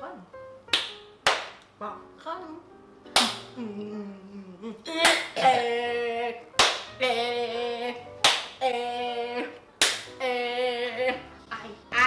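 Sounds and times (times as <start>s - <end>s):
sharp claps: 0.7s - 1.6s, 6.6s - 6.9s, 8.2s - 8.6s, 9.8s - 10.1s.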